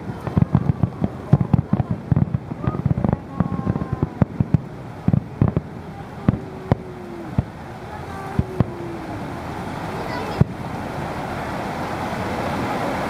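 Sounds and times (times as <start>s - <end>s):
firework shells bursting: 0.0s - 8.8s.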